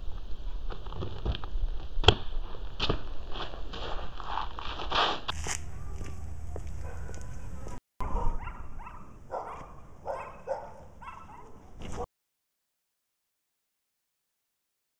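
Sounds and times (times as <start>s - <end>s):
dog yipping: 5.8s - 12.1s.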